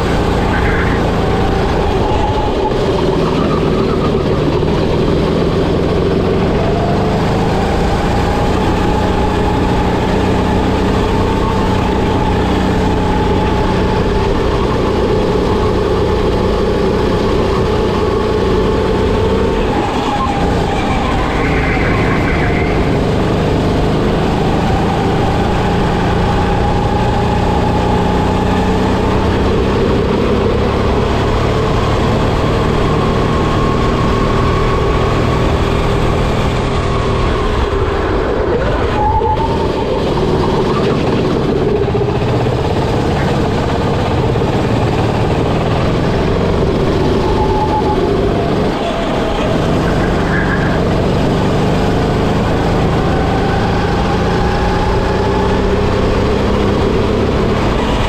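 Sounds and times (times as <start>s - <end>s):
kart engine running: 0.0s - 58.0s.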